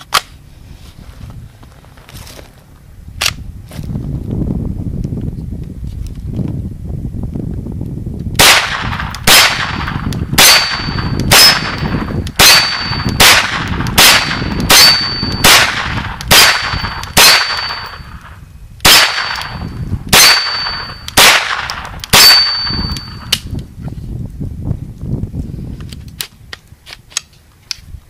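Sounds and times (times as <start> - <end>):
gunshots: 8.4 - 18.0, 18.8 - 23.2
high metallic ring: 10.4 - 13.2, 14.7 - 15.5, 16.7 - 18.2, 19.2 - 21.2, 22.2 - 23.4.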